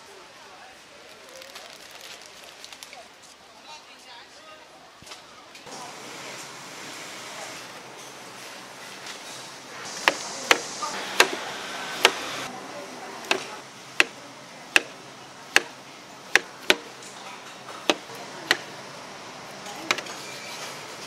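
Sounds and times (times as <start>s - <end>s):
knife chopping on cutting board: 10.0s - 11.4s, 13.3s - 14.2s, 14.8s - 15.0s, 16.4s - 16.9s, 17.8s - 18.7s.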